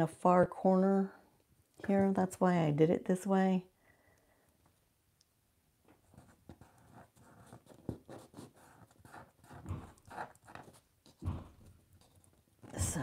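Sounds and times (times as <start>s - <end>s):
fingers rubbing paper: 6.2s - 12.4s.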